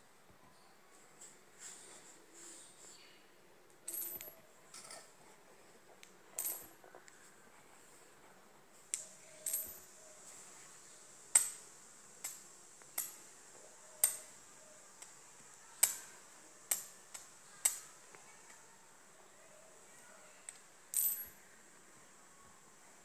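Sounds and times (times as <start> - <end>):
stone clinking against coin: 3.9 - 5.0, 6.4 - 6.8, 9.4 - 9.9, 20.9 - 21.4.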